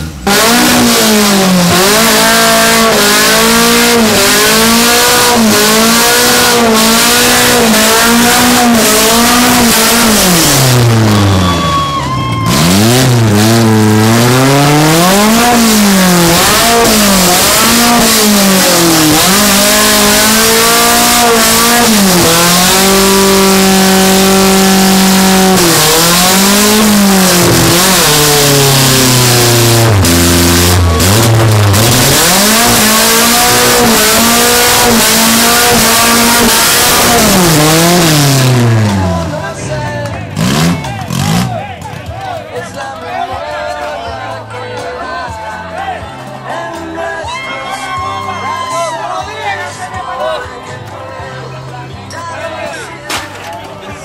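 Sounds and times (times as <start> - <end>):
car engine revving: 0.0 - 42.4
tires spinning: 0.0 - 42.7.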